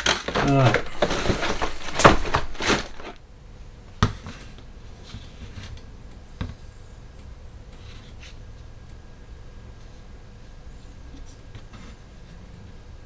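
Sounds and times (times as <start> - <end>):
plastic bags and paper crinkling: 0.0 - 3.2.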